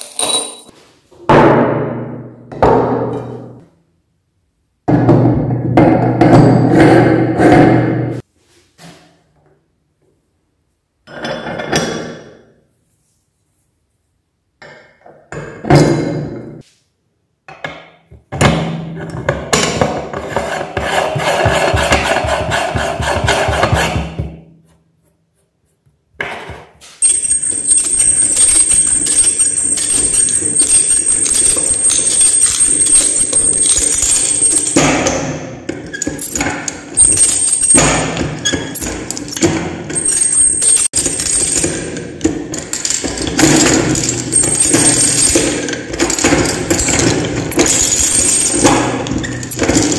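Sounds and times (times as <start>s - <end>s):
glass marbles rattling in glass bowl: 27.0s - 34.9s, 40.0s - 41.9s, 42.5s - 49.9s
metal grinder parts knocking: 27.0s - 49.9s.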